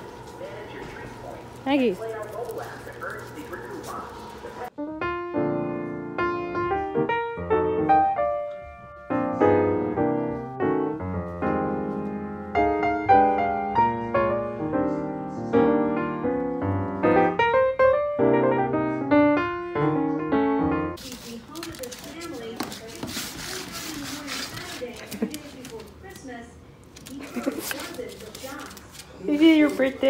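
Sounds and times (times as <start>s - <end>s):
piano music: 4.7s - 21.0s.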